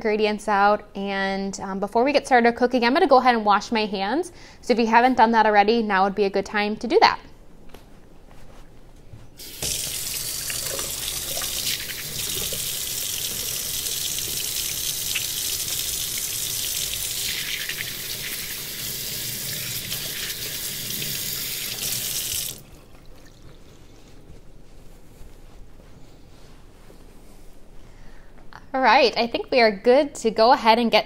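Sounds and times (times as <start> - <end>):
faucet water running: 9.4 - 23.4.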